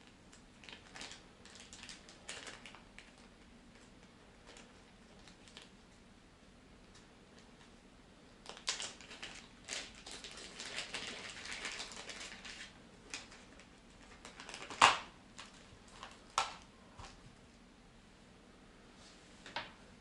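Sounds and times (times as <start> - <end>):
plastic packaging rustling: 0.0 - 5.7, 8.4 - 17.2.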